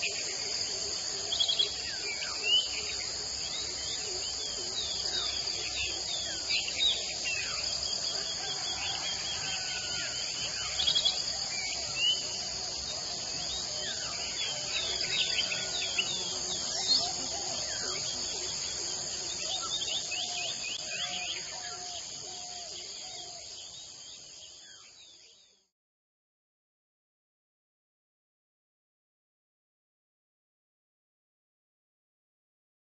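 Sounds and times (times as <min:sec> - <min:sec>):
crickets trilling: 0:00.0 - 0:25.6.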